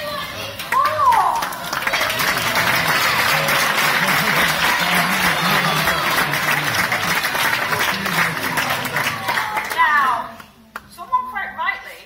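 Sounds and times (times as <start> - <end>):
audience applauding: 0.6 - 10.1.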